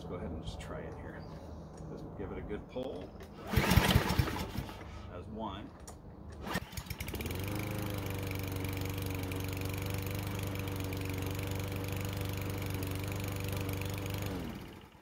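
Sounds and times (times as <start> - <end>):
lawn mower engine starting and running: 3.2 - 5.1, 5.9 - 15.0.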